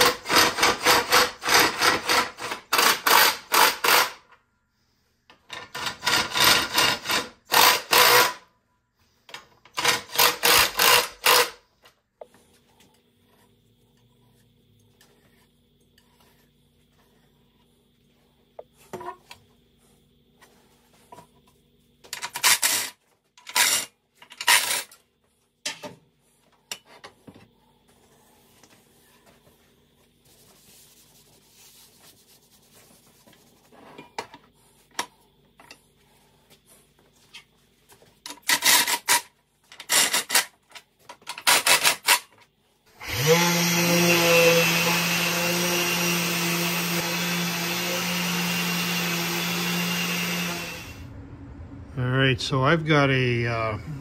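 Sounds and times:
hand pad rubbing on wood: 28.1 - 33.9
orbital sander running: 43.0 - 51.1.

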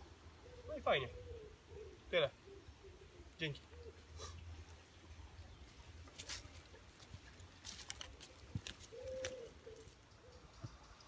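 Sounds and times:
low bird call: 0.4 - 4.6, 8.3 - 11.0
footsteps on dry leaves: 6.0 - 10.0.

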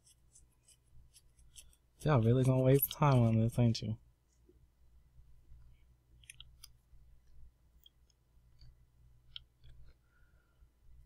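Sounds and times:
low steady hum: 0.0 - 11.0
mouse scroll wheel clicks: 6.2 - 6.8.

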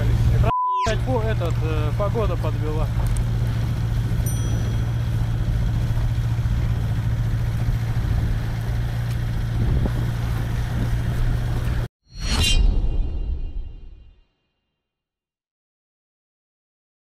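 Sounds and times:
outboard motor droning: 1.1 - 11.9.

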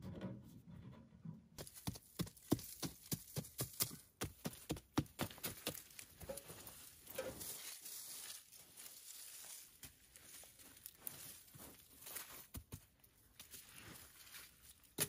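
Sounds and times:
hands brushing soil and leaves: 5.8 - 12.5, 13.3 - 15.0.

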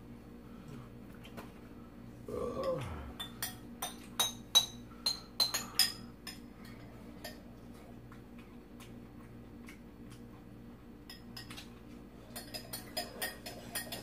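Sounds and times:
utensils clinking on ceramic bowls: 2.6 - 7.4, 12.2 - 14.0.

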